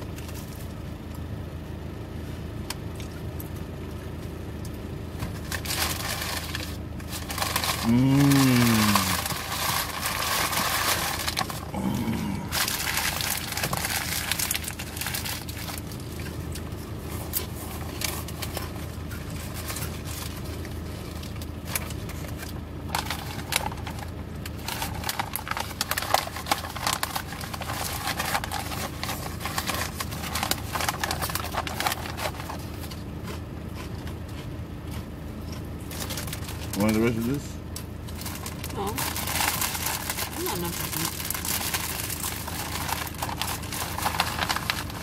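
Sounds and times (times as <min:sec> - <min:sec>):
plastic snack bag crinkling: 0:05.3 - 0:33.0, 0:38.0 - 0:45.0
person chewing food: 0:32.4 - 0:36.4.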